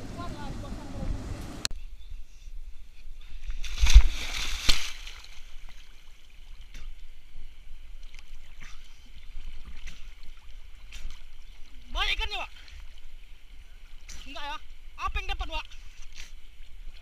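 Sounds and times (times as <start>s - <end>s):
river water splashing: 0.0s - 1.7s, 3.3s - 17.0s
water rushing burst: 0.0s - 1.7s.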